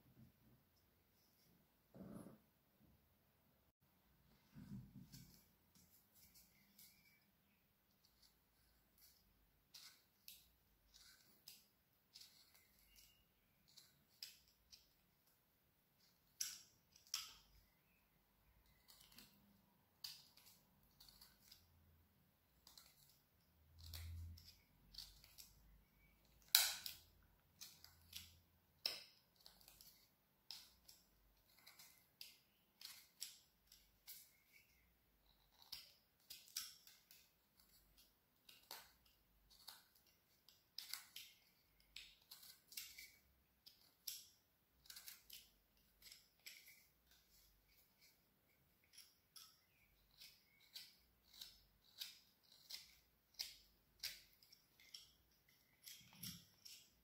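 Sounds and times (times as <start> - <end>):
carving tool cutting wood: 42.2 - 48.1, 48.8 - 57.0.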